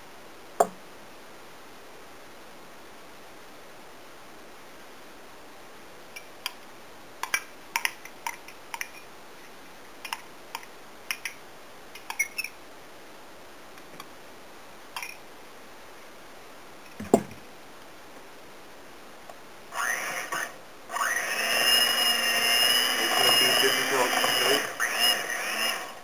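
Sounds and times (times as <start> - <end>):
clicks and taps of utensils: 7.2 - 9.0.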